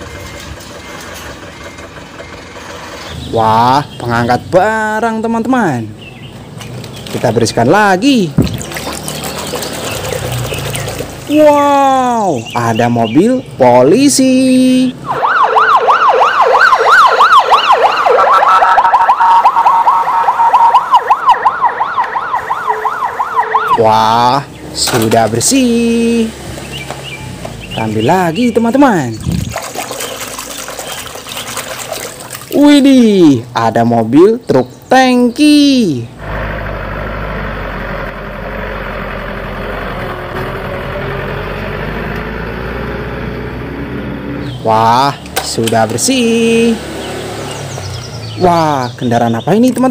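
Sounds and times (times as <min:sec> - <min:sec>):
truck engine running: 0:00.0 - 0:05.0, 0:05.9 - 0:13.7, 0:14.8 - 0:32.6, 0:36.1 - 0:48.6
police siren yelp: 0:14.6 - 0:24.4
steady siren tone: 0:15.0 - 0:23.9.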